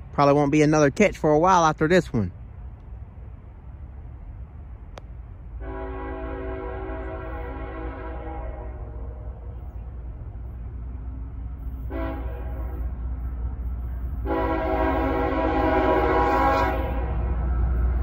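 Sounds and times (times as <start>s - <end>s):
train rumbling: 0.0s - 18.0s
locomotive air horn: 5.6s - 9.6s, 11.8s - 13.0s, 14.1s - 17.5s.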